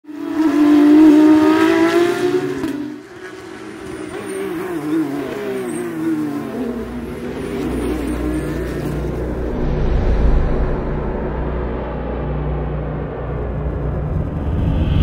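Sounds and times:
race car engine at high revs: 0.1s - 9.6s.

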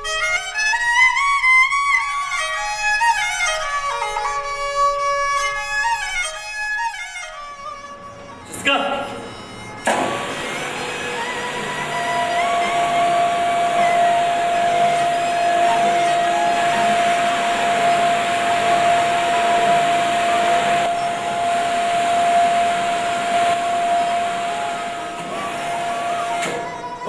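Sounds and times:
electric hoist motor whining: 7.8s - 27.0s.

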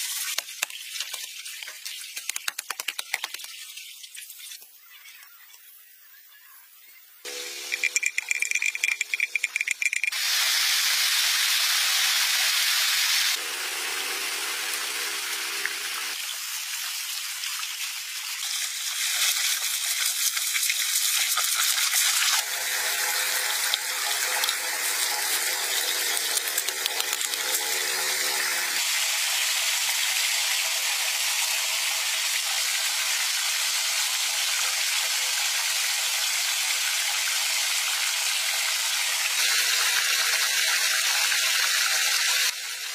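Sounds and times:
rattling clicks: 7.7s - 10.1s.

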